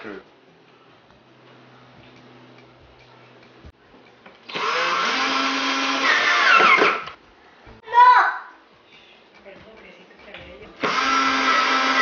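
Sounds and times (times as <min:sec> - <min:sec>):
drill motor whining: 0:04.5 - 0:07.1, 0:10.8 - 0:12.0.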